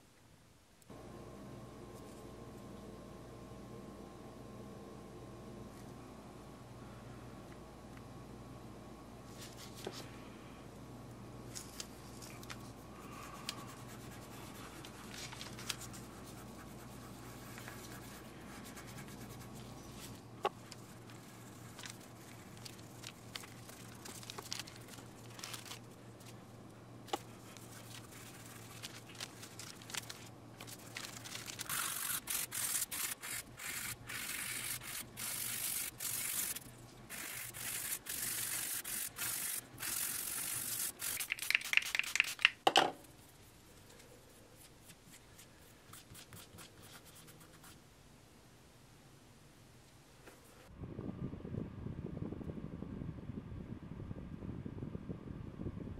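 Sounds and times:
hands rubbing wood: 0:11.7 - 0:26.4, 0:27.1 - 0:42.6.

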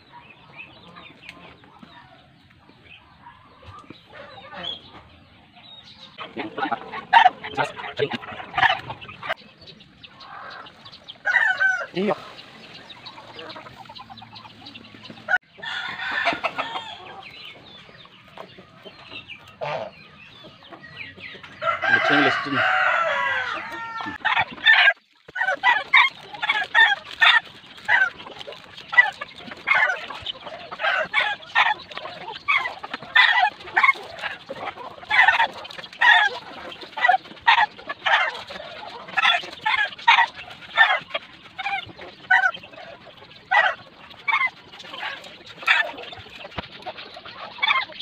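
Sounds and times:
hens clucking: 0:00.0 - 0:48.0
rooster crowing: 0:15.6 - 0:17.1, 0:21.6 - 0:24.2.

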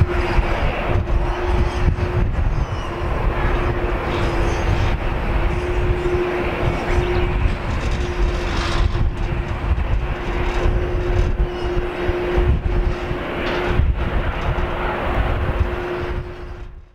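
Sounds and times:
jet engines rumbling: 0:00.0 - 0:16.9
wind buffeting microphone: 0:00.0 - 0:16.9.

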